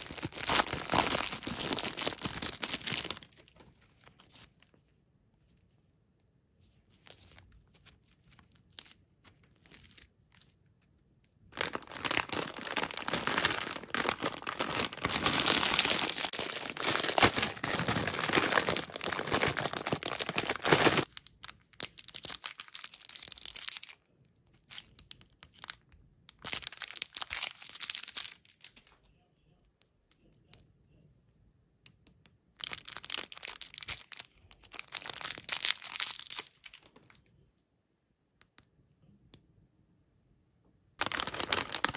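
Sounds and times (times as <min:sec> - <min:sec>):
plastic candy wrappers crinkling: 0:00.0 - 0:04.8, 0:06.9 - 0:29.0, 0:32.6 - 0:37.2, 0:41.0 - 0:41.9.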